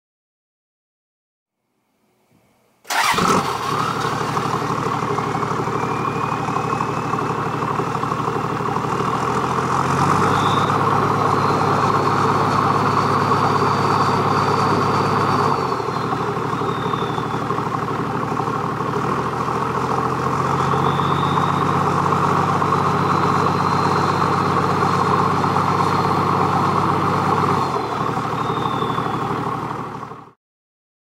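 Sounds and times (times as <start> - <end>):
faint high turbo whine: 1.6 - 30.3
diesel engine running: 2.9 - 30.4.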